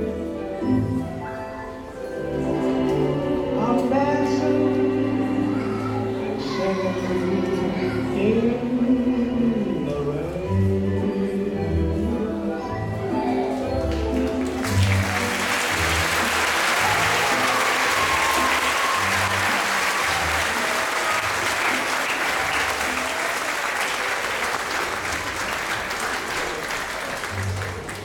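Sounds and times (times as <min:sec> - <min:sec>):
stage music playing: 0:13.8 - 0:28.0
audience applauding: 0:13.9 - 0:28.0.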